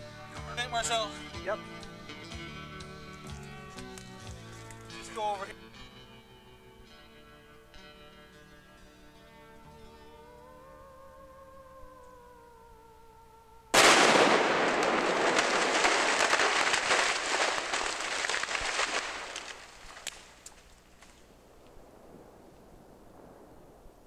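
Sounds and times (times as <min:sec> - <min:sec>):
steady wavering tone: 0:09.4 - 0:13.7
explosive blast: 0:13.7 - 0:19.4
sharp cracks: 0:13.7 - 0:24.0
debris crashing down: 0:13.8 - 0:21.3.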